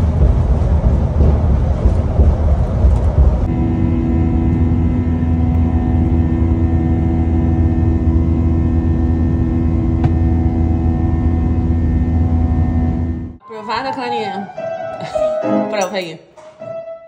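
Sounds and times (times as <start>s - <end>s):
constant hum tones: 0.0s - 13.4s
jet engines droning: 0.0s - 13.4s.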